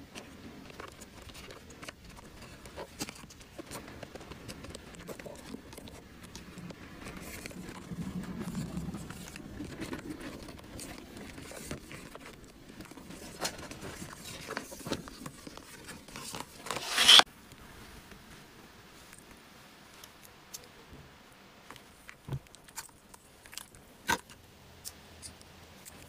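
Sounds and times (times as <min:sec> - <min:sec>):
swishing rustle: 0:16.7 - 0:17.2.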